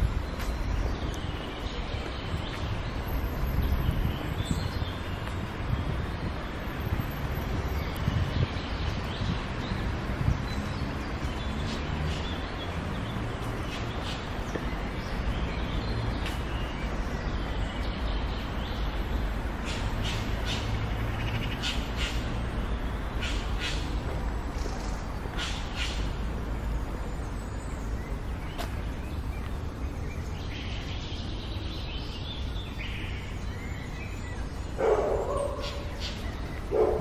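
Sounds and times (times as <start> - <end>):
distant city traffic rumble: 0.0 - 37.0.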